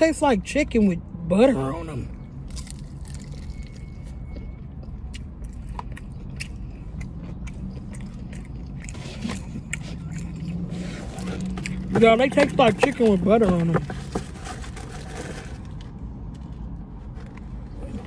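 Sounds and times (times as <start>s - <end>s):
person chewing with mouth open: 2.4s - 13.2s.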